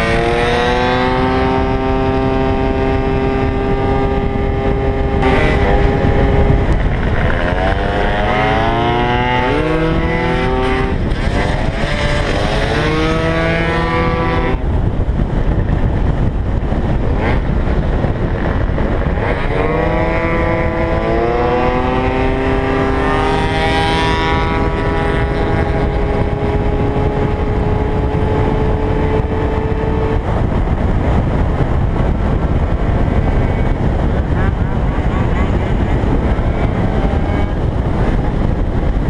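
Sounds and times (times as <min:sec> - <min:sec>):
scooter engine: 0:00.0 - 0:14.8
wind buffeting microphone: 0:00.0 - 0:39.0.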